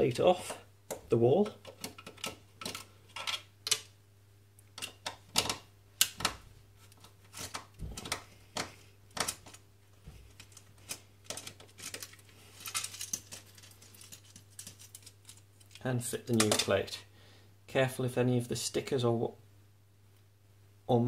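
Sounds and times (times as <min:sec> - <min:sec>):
plastic clicks knocks and scrapes: 0:00.9 - 0:03.9, 0:04.8 - 0:15.4.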